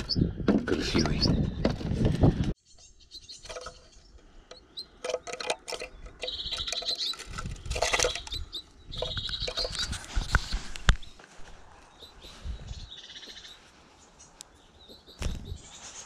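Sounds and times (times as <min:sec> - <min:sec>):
high trilled bird chirps: 0:02.6 - 0:05.0, 0:05.9 - 0:11.2, 0:11.9 - 0:16.0
clicks and knocks against bars: 0:03.4 - 0:03.9, 0:04.5 - 0:08.4, 0:09.0 - 0:10.0.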